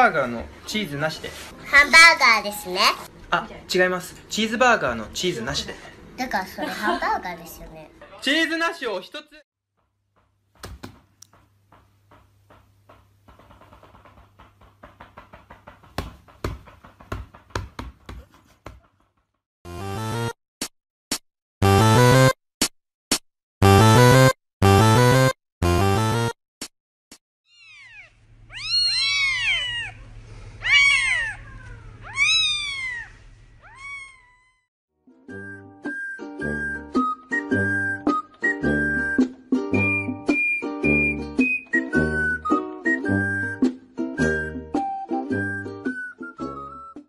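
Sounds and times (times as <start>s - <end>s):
light taps and knocks: 9.8s - 19.3s
kittens mewing: 27.5s - 34.6s.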